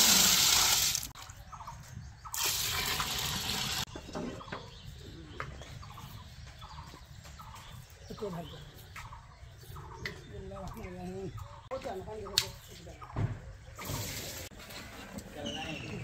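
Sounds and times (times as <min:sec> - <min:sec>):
water pouring and splashing: 0:00.0 - 0:01.2, 0:02.3 - 0:03.9, 0:13.8 - 0:14.5.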